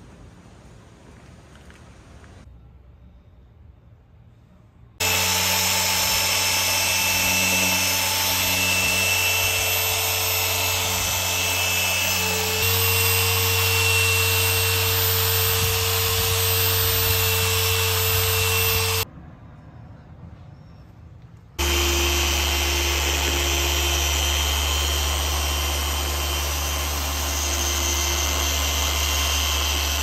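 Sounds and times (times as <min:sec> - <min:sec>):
polisher motor hum: 0:05.0 - 0:19.1, 0:21.6 - 0:30.0.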